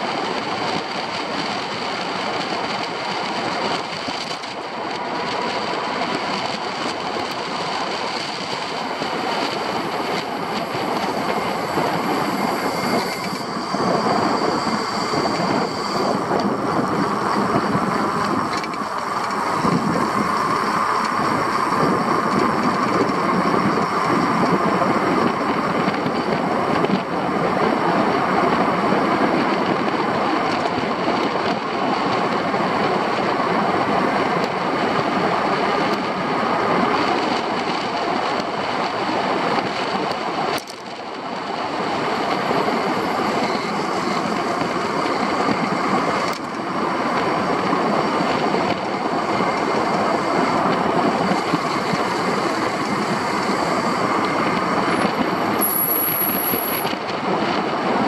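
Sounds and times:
rushing wind: 0.0s - 58.0s
vehicle road noise: 0.0s - 58.0s
faint steady whine: 4.4s - 28.3s.

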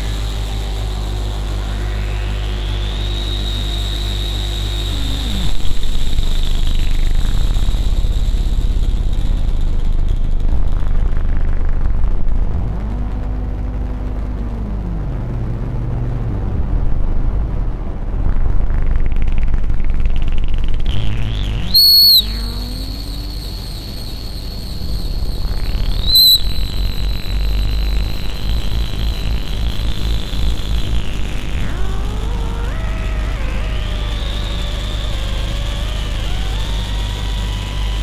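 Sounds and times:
high whistling filter sweep: 0.0s - 10.1s, 20.9s - 31.6s
low buzzing tones: 0.0s - 38.0s
noise synthesizer droning: 0.0s - 38.0s
low tone rising and falling: 21.2s - 33.8s.

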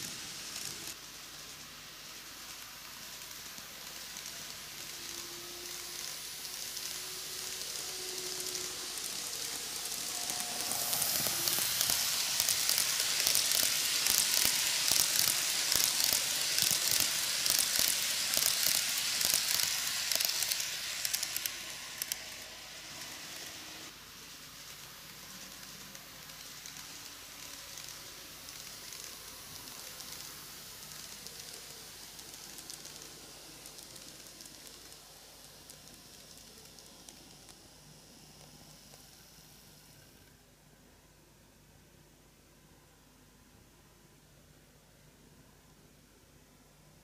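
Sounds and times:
model train wheels rattling: 0.0s - 23.9s, 24.7s - 37.7s.

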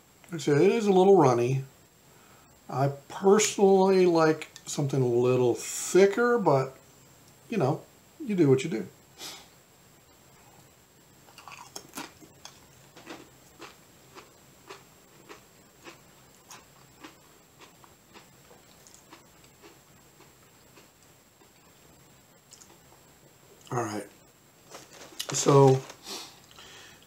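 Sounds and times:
crunchy chewing of chip: 11.3s - 21.8s.

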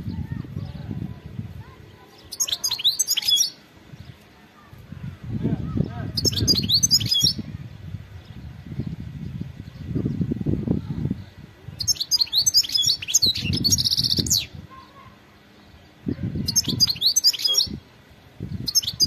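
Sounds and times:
bird twittering chirps: 2.0s - 4.6s, 5.6s - 7.5s, 11.1s - 17.8s, 18.4s - 19.0s.

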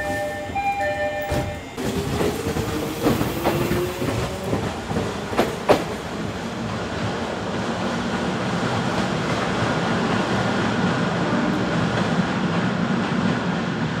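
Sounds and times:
electric train running on rails: 0.0s - 14.0s.

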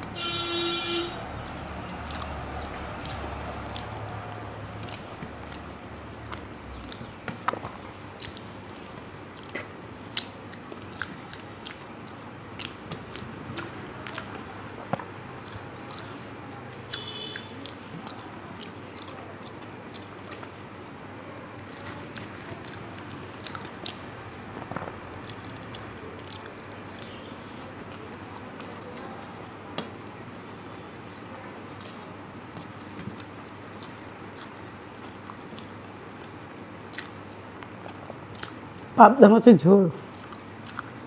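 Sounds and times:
person chewing food: 1.3s - 20.9s, 21.5s - 38.9s, 40.1s - 41.0s
sharp mouth clicks: 1.4s - 16.1s.

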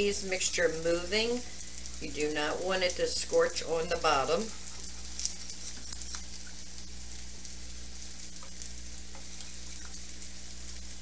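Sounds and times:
onions sizzling in a skillet: 0.0s - 11.0s.

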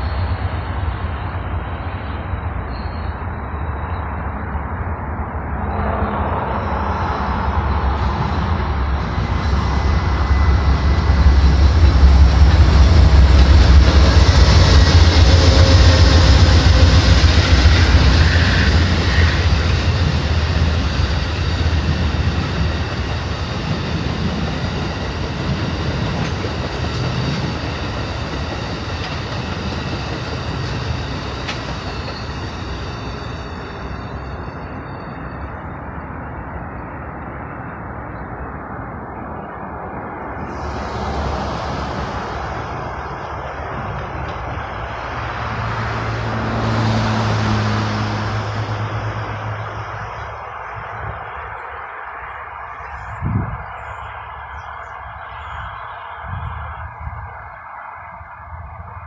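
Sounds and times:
diesel locomotive rumble: 0.0s - 36.5s
train wheels on rails: 0.0s - 59.0s.

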